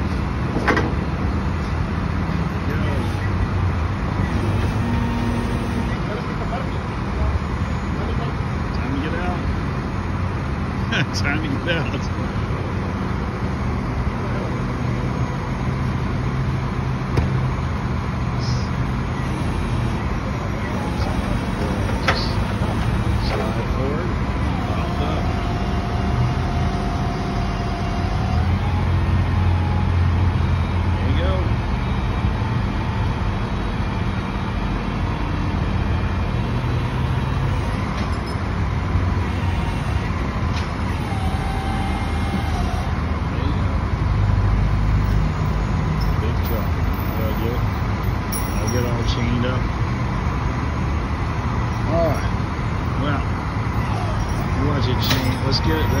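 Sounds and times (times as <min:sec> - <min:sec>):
truck engine running: 0:00.0 - 0:56.0
faint hydraulic whine: 0:18.4 - 0:30.0, 0:39.2 - 0:43.6.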